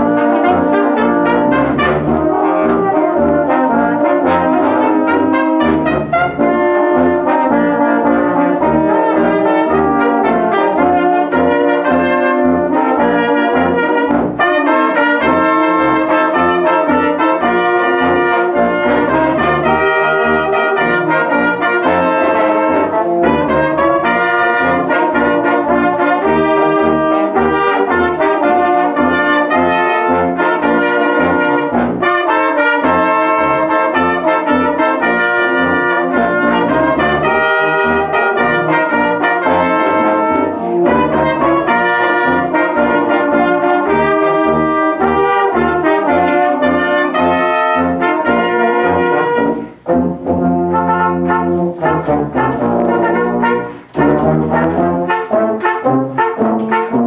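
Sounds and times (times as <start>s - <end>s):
brass band playing: 0.0s - 57.0s.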